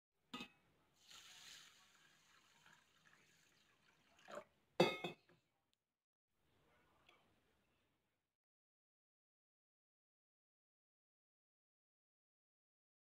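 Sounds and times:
water trickling and splashing: 1.0 - 4.5.

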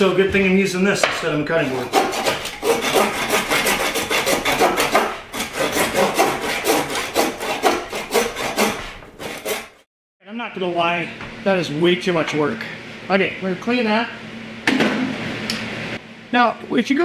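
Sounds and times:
hand saw cutting bone: 1.5 - 9.9.

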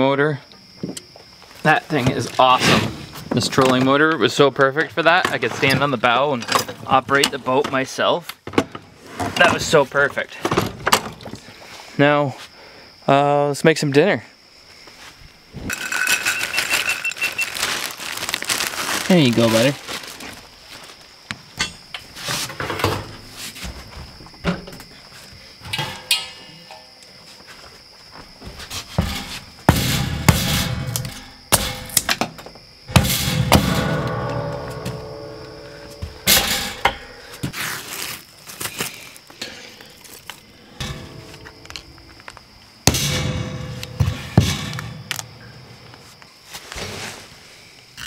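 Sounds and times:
cooking gear knocking and clunking: 25.6 - 27.0, 28.9 - 37.5.

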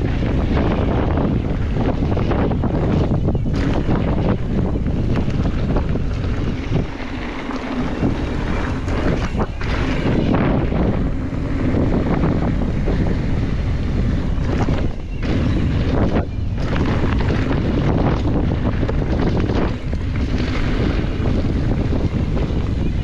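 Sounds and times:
wind buffeting microphone: 0.0 - 23.0
bike rattling knocks: 14.1 - 22.7.

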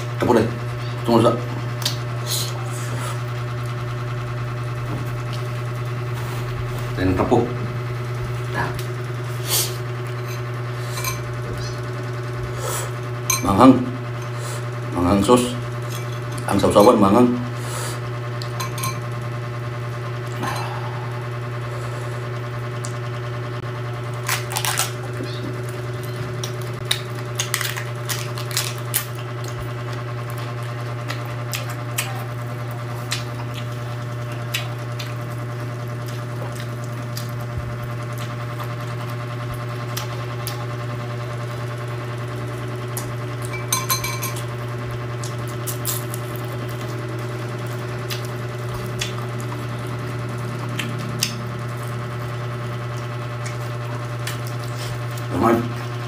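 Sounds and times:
steady low hum: 0.0 - 56.0
crunching raw cabbage: 23.7 - 40.9, 45.1 - 56.0.

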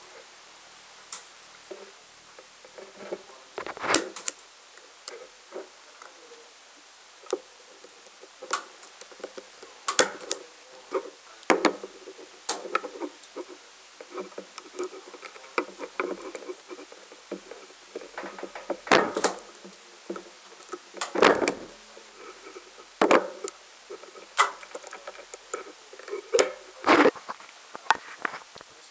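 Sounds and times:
plastic clicks and scraping: 7.2 - 28.7.

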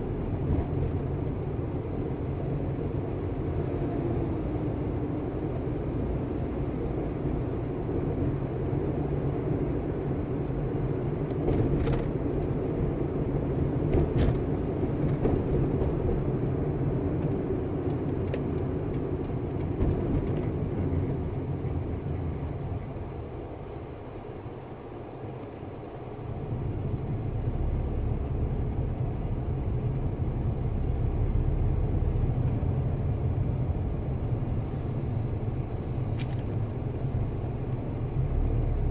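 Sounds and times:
car road and engine rumble: 0.0 - 38.9.

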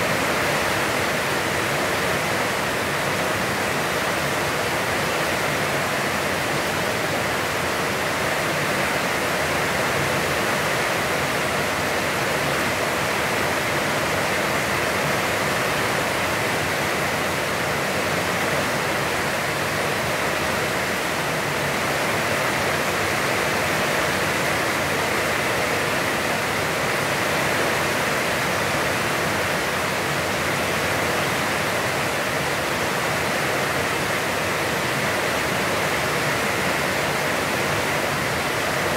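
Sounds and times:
heavy rain falling: 0.0 - 38.9.

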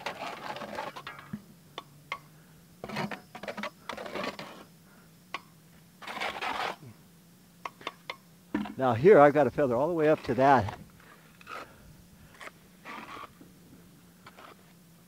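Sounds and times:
mix scraped from plastic bucket: 0.0 - 1.4, 2.8 - 4.7, 6.0 - 6.8, 10.0 - 13.4, 14.2 - 14.7.

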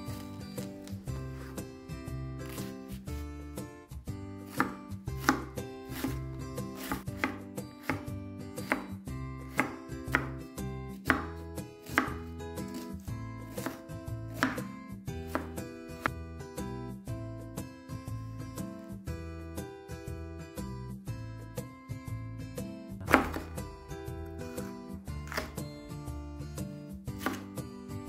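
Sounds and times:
knife chopping on wooden board: 2.4 - 3.0, 4.4 - 12.9, 13.5 - 14.7, 15.3 - 16.2, 23.0 - 25.8, 27.1 - 27.6.

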